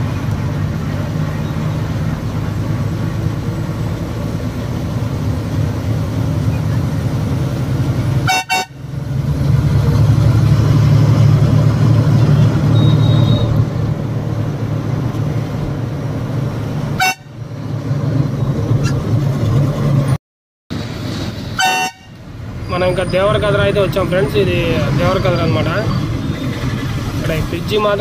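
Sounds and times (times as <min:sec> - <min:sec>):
diesel lorry engine droning: 0:00.0 - 0:28.0
road noise: 0:00.0 - 0:28.0
horn toots: 0:08.2 - 0:08.9, 0:12.7 - 0:13.7, 0:17.0 - 0:17.4, 0:21.5 - 0:22.2.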